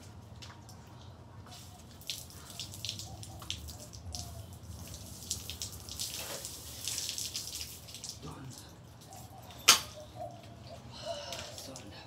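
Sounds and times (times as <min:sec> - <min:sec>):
hose water splashing: 0:01.4 - 0:09.3.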